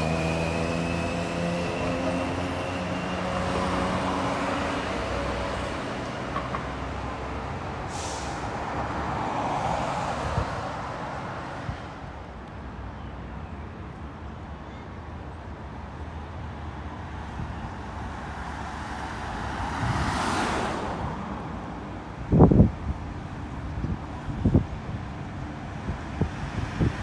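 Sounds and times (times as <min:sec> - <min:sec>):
vehicles passing: 0:00.0 - 0:27.0
short hiss: 0:07.9 - 0:08.4.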